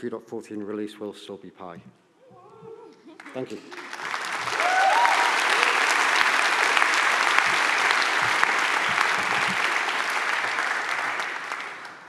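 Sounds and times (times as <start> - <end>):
audience applauding: 3.2 - 12.0.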